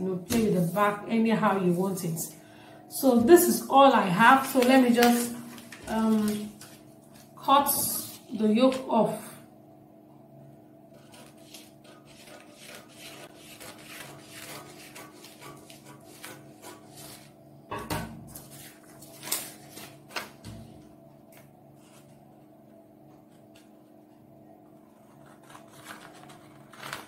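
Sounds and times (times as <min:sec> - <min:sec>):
paper crackling: 0:04.2 - 0:08.9, 0:10.9 - 0:17.4, 0:18.3 - 0:22.3, 0:24.6 - 0:27.0
scissors snipping paper: 0:10.9 - 0:17.3, 0:18.6 - 0:20.4, 0:25.0 - 0:27.0.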